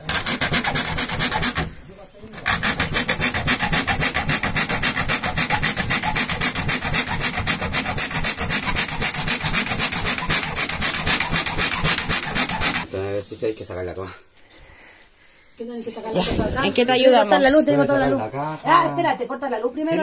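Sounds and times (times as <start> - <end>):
saw cutting ceiling board: 0.0 - 12.9.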